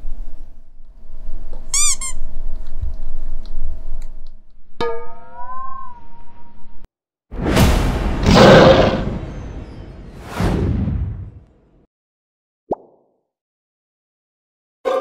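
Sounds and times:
cat meowing: 5.4s - 6.5s.

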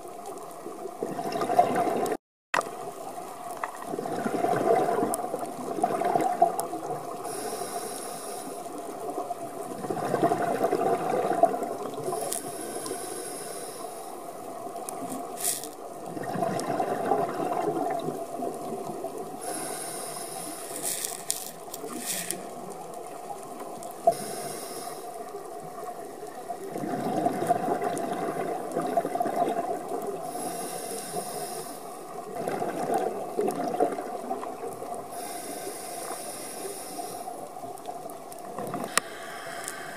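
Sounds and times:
regulator inhale hiss: 7.1s - 8.9s, 12.0s - 14.4s, 19.4s - 22.7s, 24.0s - 25.5s, 30.2s - 32.1s, 35.1s - 37.6s, 38.8s - 39.9s.

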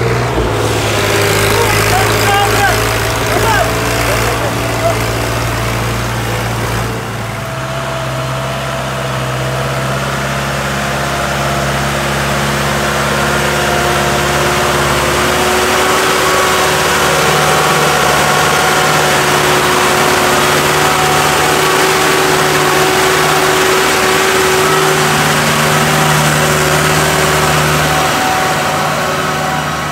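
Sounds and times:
tractor diesel engines under load: 0.0s - 29.9s.

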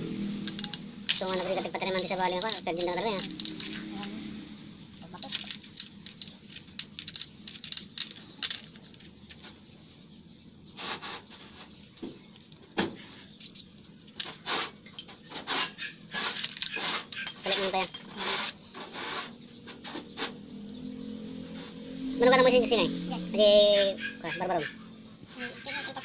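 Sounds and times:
metal scrapes: 0.0s - 6.2s, 14.2s - 20.5s.

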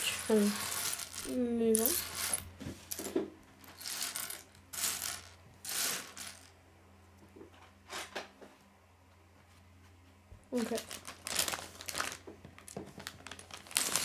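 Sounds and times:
plastic pieces scraping on wood: 11.3s - 14.0s.

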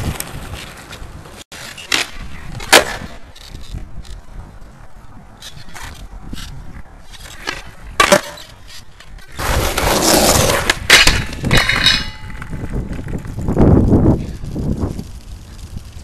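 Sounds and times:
skateboard rolling and scraping: 0.0s - 16.0s
skateboard clacks: 7.3s - 13.3s.

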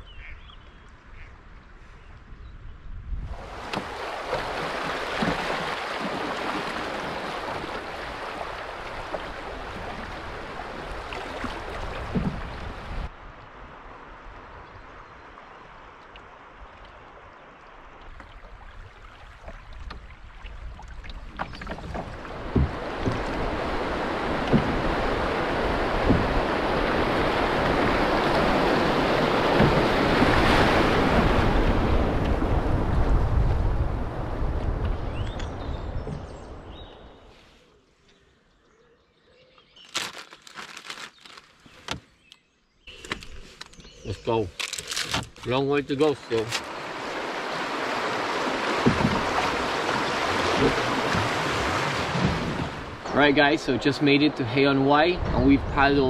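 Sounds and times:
wind rumbling on microphone: 0.0s - 37.3s, 46.2s - 56.0s
river water rushing around canoe: 3.2s - 37.6s, 42.9s - 56.0s
sharp knocks: 26.0s - 26.4s, 48.8s - 49.4s.

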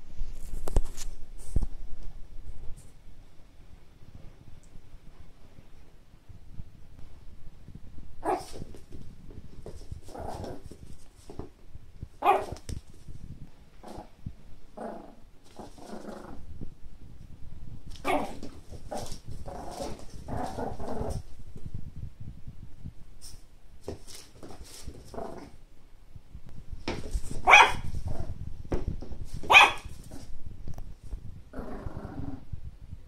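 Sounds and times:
small dog barking: 8.2s - 8.6s, 12.2s - 12.6s, 18.0s - 18.4s, 27.4s - 27.9s, 29.5s - 29.9s.

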